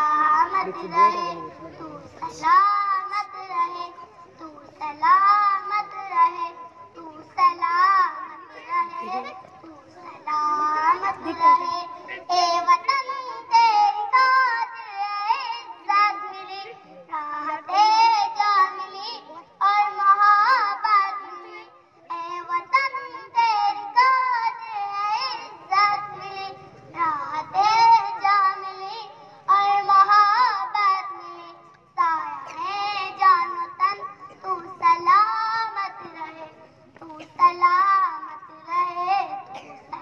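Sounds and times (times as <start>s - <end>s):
child singing: 0.0s - 40.0s.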